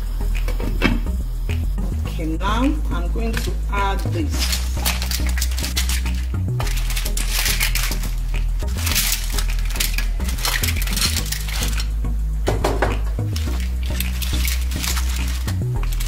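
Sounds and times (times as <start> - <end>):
shells clattering in metal pan: 3.2 - 16.0.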